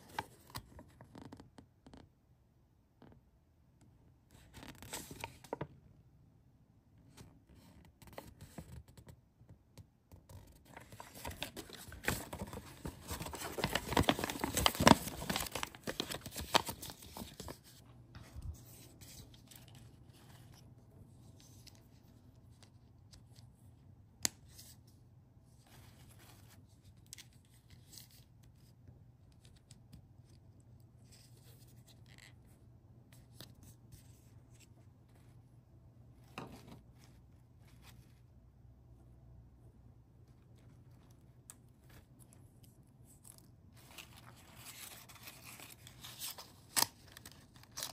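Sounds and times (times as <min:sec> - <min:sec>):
packaging crinkling and rustling: 0:10.6 - 0:17.7.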